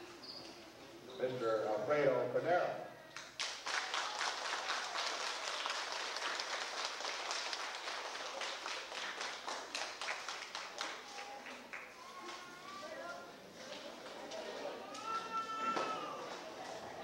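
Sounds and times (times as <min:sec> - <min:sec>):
audience applauding: 0:03.2 - 0:12.3.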